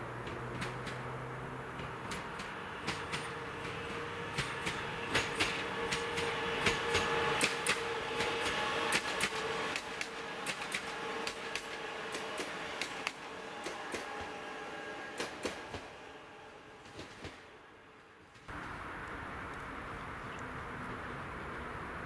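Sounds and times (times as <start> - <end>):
train wheels clacking over rail joints: 0.2 - 17.6.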